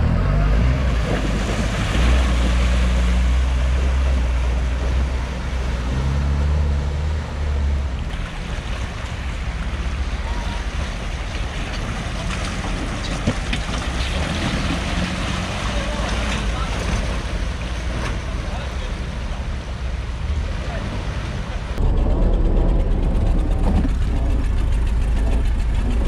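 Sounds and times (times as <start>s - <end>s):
vehicle engine running: 0.0s - 26.0s
rushing wind-like noise: 21.3s - 26.0s.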